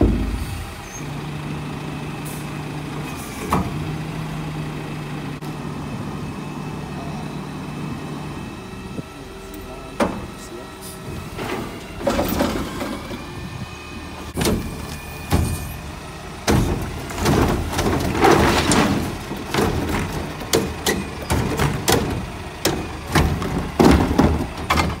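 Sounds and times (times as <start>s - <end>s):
garbage cart bangs and knocks: 0.0s - 0.5s, 11.4s - 13.1s, 16.4s - 25.0s
truck diesel engine rumble: 0.0s - 25.0s.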